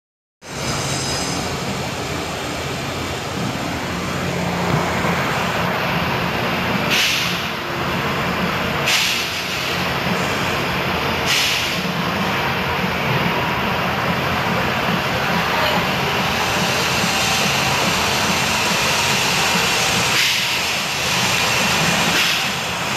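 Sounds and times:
steady rushing workshop noise: 0:00.4 - 0:22.9
short hisses: 0:06.9 - 0:07.5, 0:11.3 - 0:11.9.

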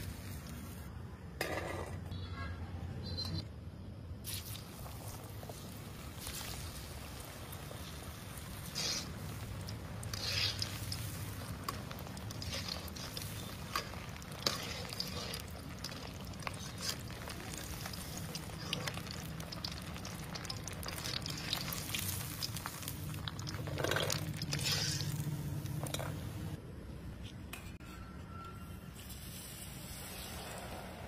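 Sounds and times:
food deep-frying in hot oil: 0:04.2 - 0:26.6
oil crackling and popping: 0:04.2 - 0:26.6.

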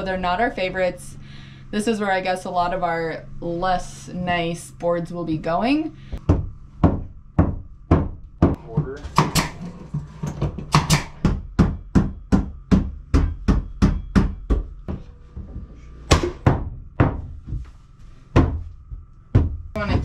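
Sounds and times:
hammer striking wooden floorboards: 0:06.2 - 0:15.0, 0:18.3 - 0:18.7.

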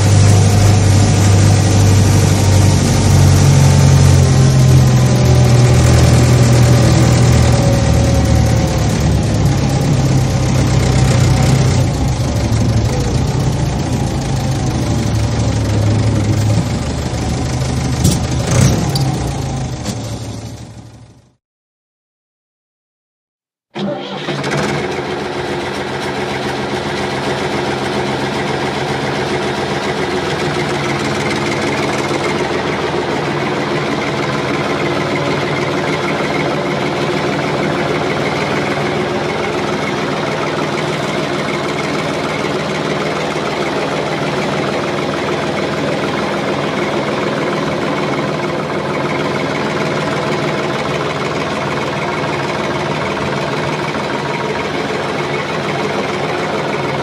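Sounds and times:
heavy machine engine running: 0:00.0 - 0:21.4, 0:23.8 - 0:57.0.

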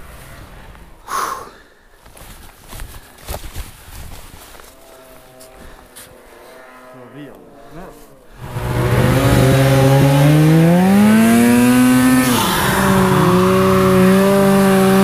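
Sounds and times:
snowmobile engine accelerating: 0:04.6 - 0:15.0.

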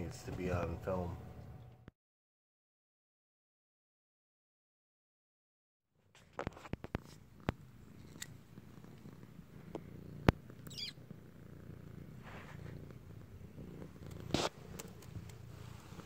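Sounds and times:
cat purring: 0:06.1 - 0:16.0.

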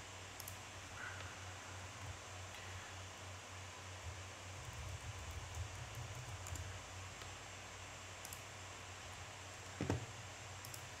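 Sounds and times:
low steady hum: 0:00.0 - 0:11.0
faint keyboard clicks: 0:00.4 - 0:00.6, 0:04.6 - 0:07.4, 0:08.2 - 0:08.5, 0:10.6 - 0:10.9.

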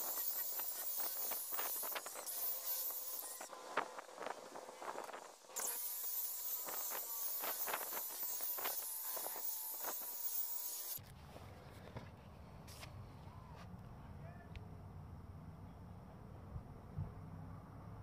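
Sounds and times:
rotary buffer whining: 0:00.0 - 0:11.0.

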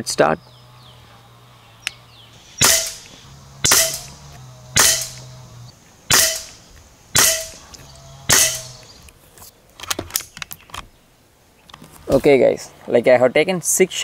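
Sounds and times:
air rifle shots: 0:02.6 - 0:05.3, 0:06.1 - 0:07.7, 0:08.3 - 0:08.8.

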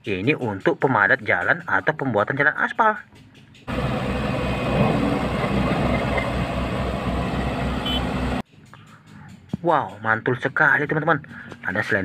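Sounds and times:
road roller diesel engine running: 0:03.7 - 0:08.4.

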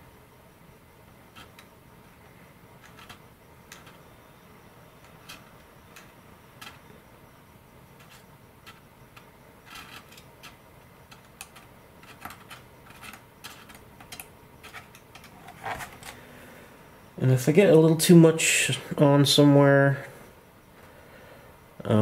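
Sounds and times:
applicator tapping and scraping: 0:08.0 - 0:16.2.

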